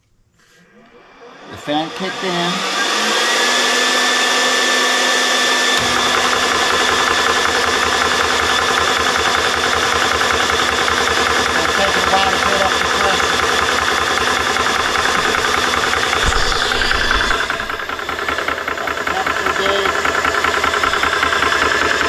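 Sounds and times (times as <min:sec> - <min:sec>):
cooling fan whine: 0:00.2 - 0:22.0
air compressor pump chugging: 0:01.0 - 0:22.0.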